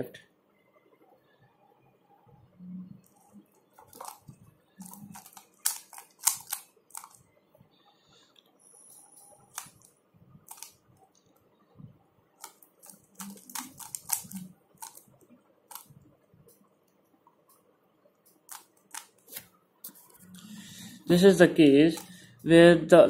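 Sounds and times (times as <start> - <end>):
puzzle cube clicking: 3.8 - 7.2, 9.5 - 10.8, 12.4 - 16.0, 18.4 - 19.5.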